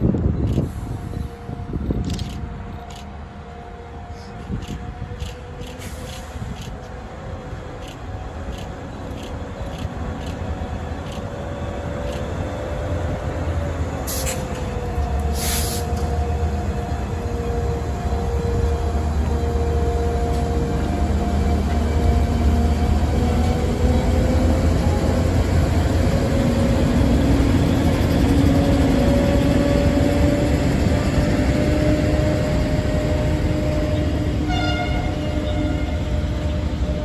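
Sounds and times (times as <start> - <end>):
train wheels rumbling on rails: 0.0 - 37.0
short horn-like tone: 34.4 - 36.1.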